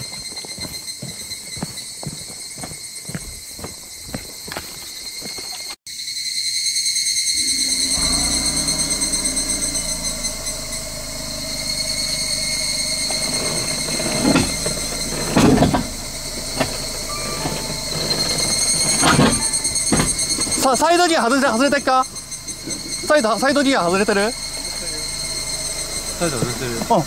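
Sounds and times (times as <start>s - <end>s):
footsteps on dirt track: 0.0s - 5.8s
insects droning: 0.0s - 27.0s
loud bumps: 7.4s - 27.0s
vehicle engine running low: 7.4s - 27.0s.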